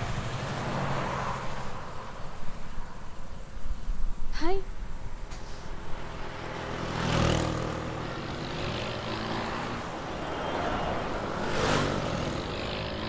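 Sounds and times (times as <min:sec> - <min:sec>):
vehicles passing by: 0:00.0 - 0:13.0.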